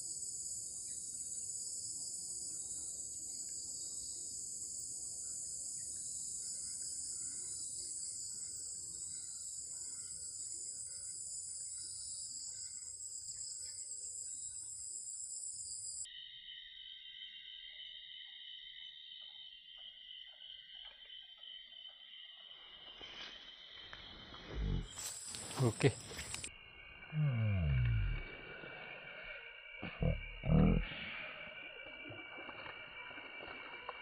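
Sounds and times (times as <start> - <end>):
high-pitched insect chorus: 0.0 - 34.0
low-pitched insect drone: 0.0 - 34.0.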